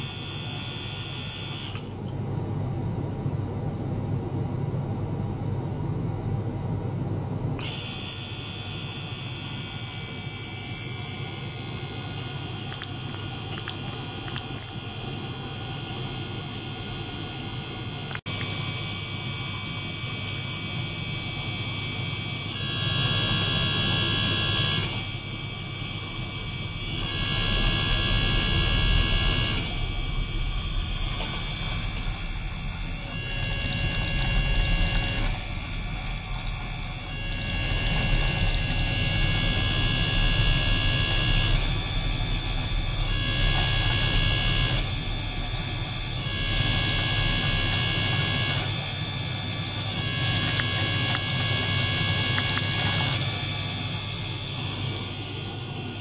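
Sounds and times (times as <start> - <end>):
ultrasonic transducer buzzing: 0.0 - 2.1, 7.6 - 56.0.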